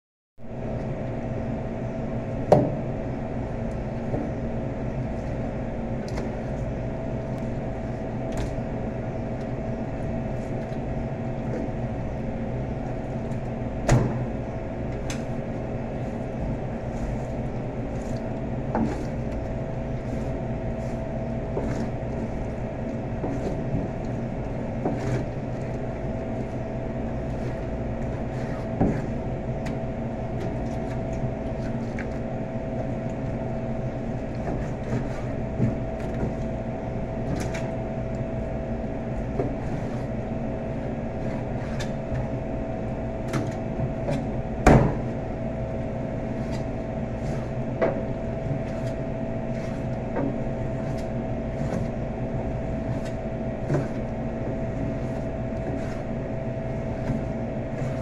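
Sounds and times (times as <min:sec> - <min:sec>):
kitchen machinery hum: 0:00.4 - 0:58.0.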